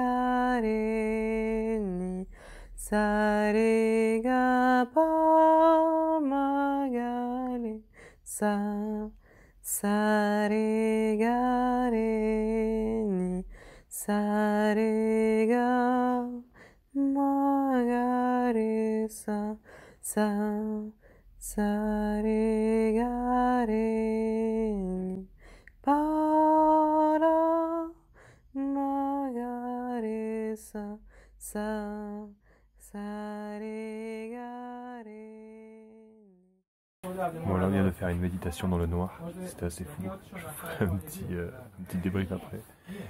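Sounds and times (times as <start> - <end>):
person singing unaccompanied: 0.0 - 28.0.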